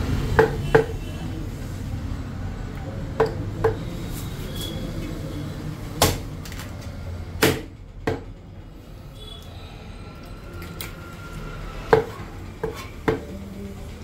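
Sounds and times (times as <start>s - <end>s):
knife chopping fish: 6.0s - 6.6s.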